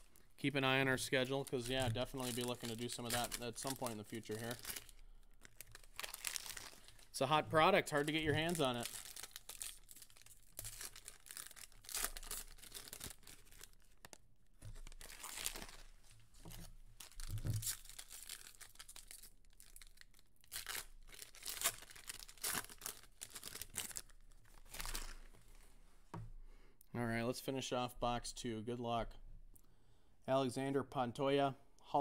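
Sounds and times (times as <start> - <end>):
card pack wrappers tearing and crinkling: 1.0 - 15.9, 16.5 - 25.3.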